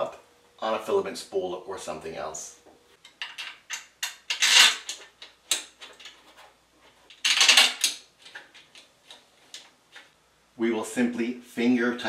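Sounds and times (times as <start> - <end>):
metal bolts clicking and clinking: 3.0 - 6.4, 7.1 - 10.1
long metal scraping: 4.2 - 5.0.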